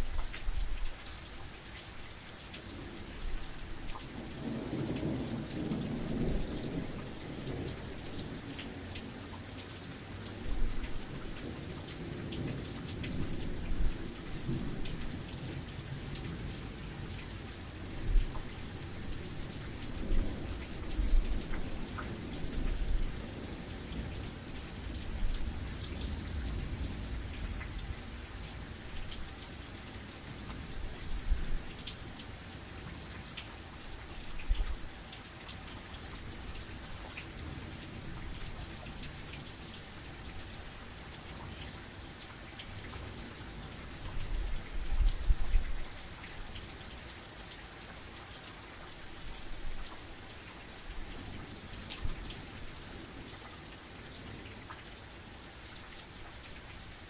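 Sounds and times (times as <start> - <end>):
steady rain falling: 0.0 - 57.0
low thunder rumbling: 4.2 - 8.5, 18.0 - 28.2.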